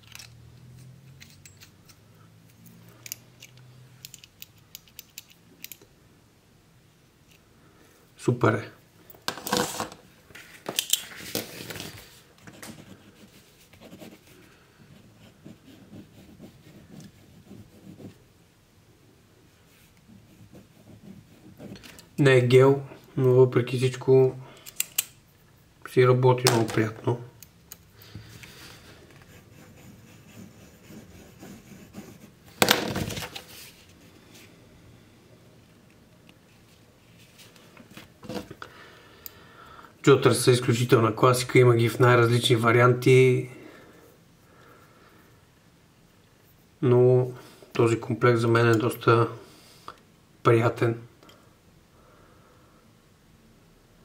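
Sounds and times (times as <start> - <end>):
paper rustling: 9.3 - 13.6
pen scratching on paper: 14.9 - 18.3, 20.2 - 21.8, 29.2 - 32.4.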